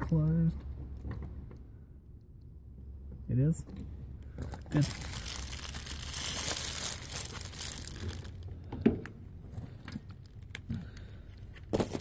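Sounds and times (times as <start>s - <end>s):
rustling and handling noise: 4.2s - 12.0s.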